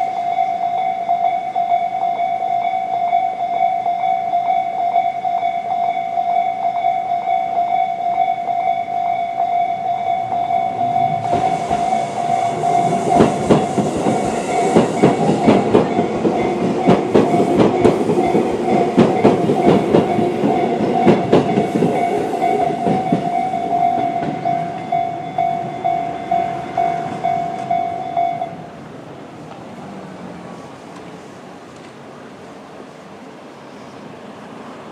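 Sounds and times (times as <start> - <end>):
level crossing warning bell: 0.0 - 28.8
train wheels clacking on rail joints: 10.3 - 28.2.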